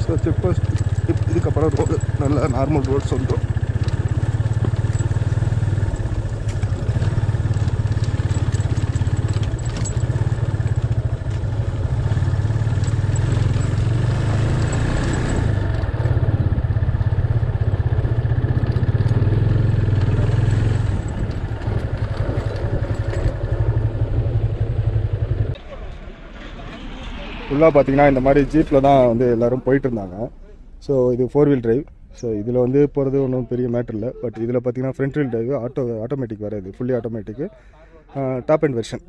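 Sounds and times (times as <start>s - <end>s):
motorcycle engine running: 0.0s - 26.7s
light rattling over rough road: 0.0s - 39.0s.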